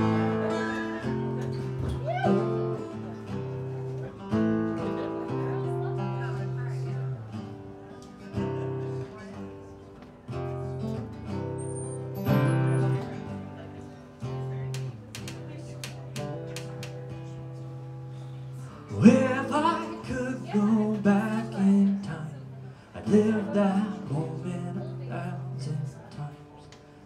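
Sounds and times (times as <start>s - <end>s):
acoustic guitar strumming: 0.0s - 27.0s
man singing: 18.8s - 26.7s.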